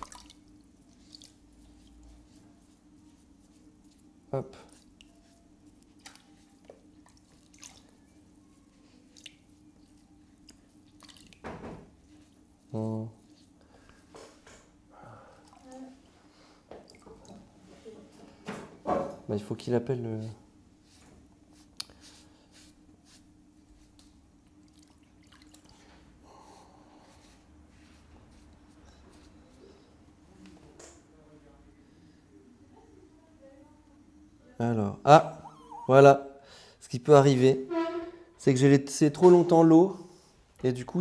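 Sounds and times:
water drips: 0:00.0 - 0:01.4, 0:10.4 - 0:11.4, 0:16.7 - 0:17.4
faint water drips: 0:00.0 - 0:02.2, 0:04.7 - 0:08.2, 0:09.0 - 0:11.4, 0:16.7 - 0:17.5, 0:24.5 - 0:26.1
faint steady hum: 0:00.0 - 0:37.2
hands dipping into water: 0:10.4 - 0:11.5.

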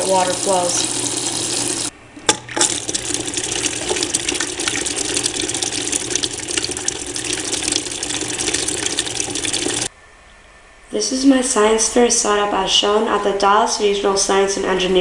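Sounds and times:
water splashing onto paddle wheel: 0:00.0 - 0:09.9.

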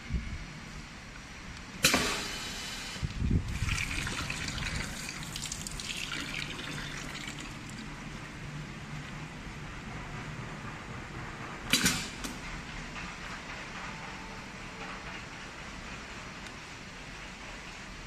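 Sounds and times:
pneumatic click with air hiss: 0:01.6 - 0:03.2, 0:11.7 - 0:12.5
liquid trickling: 0:03.3 - 0:08.1.

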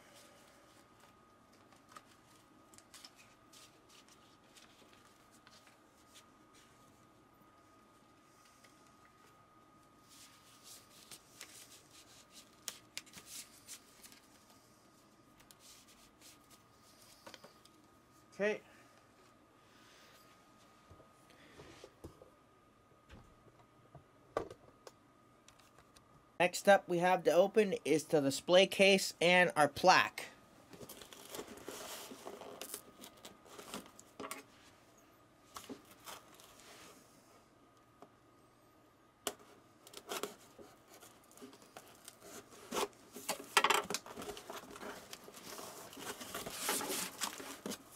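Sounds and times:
packaging crinkling and tearing: 0:30.8 - 0:34.1
paper and packaging rustling: 0:30.8 - 0:34.2, 0:35.5 - 0:36.7, 0:39.9 - 0:47.9.

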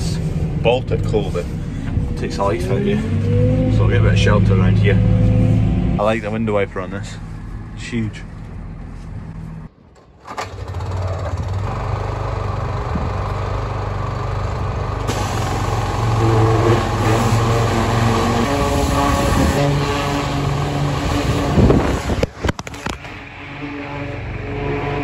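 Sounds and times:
pressure washer motor hum: 0:14.6 - 0:22.3.

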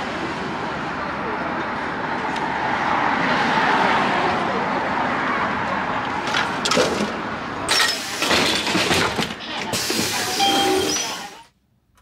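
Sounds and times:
traffic noise: 0:00.0 - 0:12.0.

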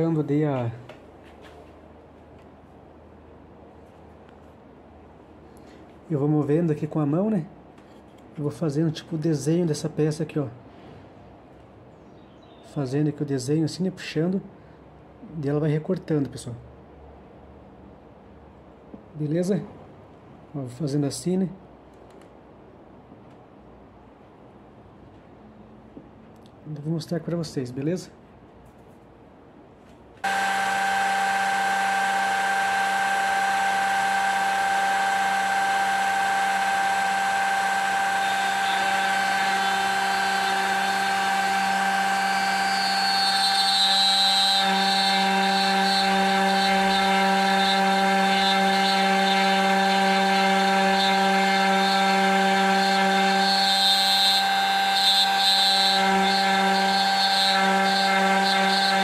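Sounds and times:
router whining: 0:30.2 - 0:59.0.

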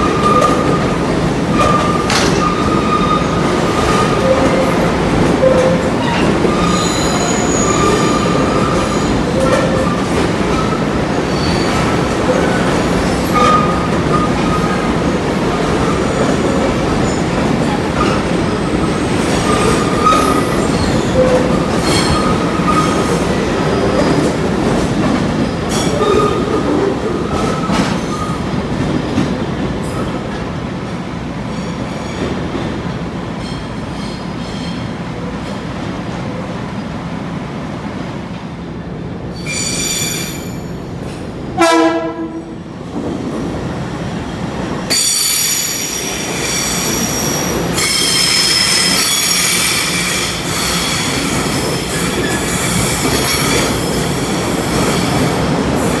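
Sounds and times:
train wheels rumbling on rail: 0:00.0 - 0:56.0
high-pitched wheel squeal: 0:05.4 - 0:09.6.

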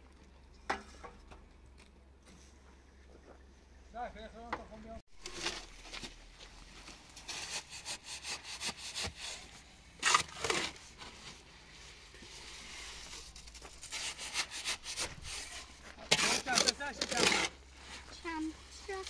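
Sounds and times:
scraping earth or sand: 0:05.2 - 0:19.0.

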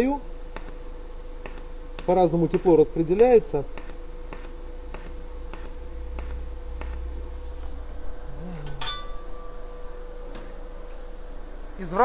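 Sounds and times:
electrical hum: 0:00.0 - 0:12.0
thin whine: 0:00.0 - 0:12.0
welder arc crackling clicks: 0:01.4 - 0:07.8.

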